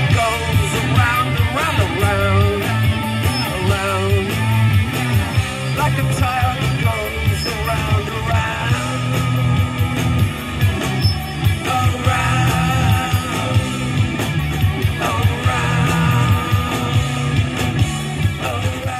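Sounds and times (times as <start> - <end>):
live rock band: 0.0 - 18.9
person singing: 11.4 - 14.1, 14.8 - 17.5, 18.2 - 18.9.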